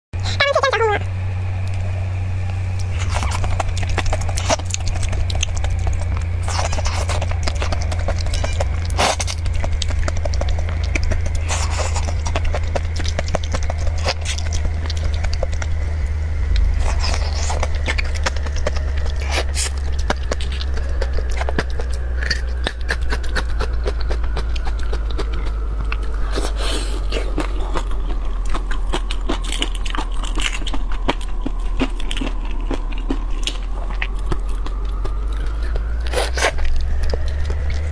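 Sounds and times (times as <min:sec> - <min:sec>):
eating sounds: 0:00.2 - 0:01.9, 0:02.8 - 0:37.9
steady low hum: 0:00.2 - 0:37.9
prawn shell cracking: 0:02.8 - 0:26.5.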